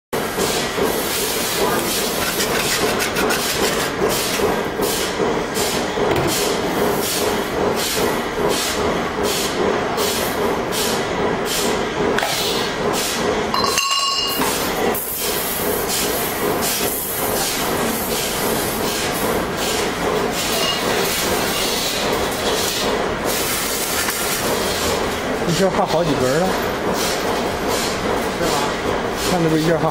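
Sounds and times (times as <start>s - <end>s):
pulsing workshop machinery hiss: 0.2s - 13.5s.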